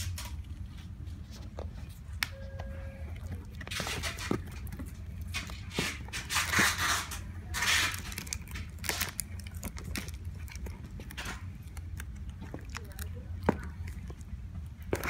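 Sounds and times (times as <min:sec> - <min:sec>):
plastic wrap crinkling: 0:03.3 - 0:15.0.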